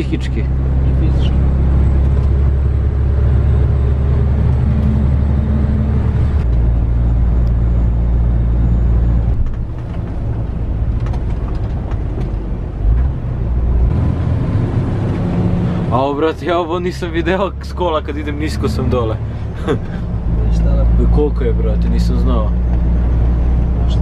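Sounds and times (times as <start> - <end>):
diesel truck engine drone: 0.0 - 24.0.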